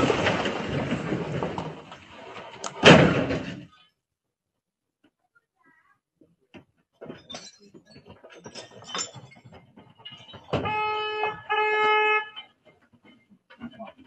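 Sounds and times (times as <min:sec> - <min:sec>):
clattering and knocks: 0:00.0 - 0:03.8, 0:06.6 - 0:11.5, 0:12.3 - 0:14.0
car horn honking: 0:10.6 - 0:12.5.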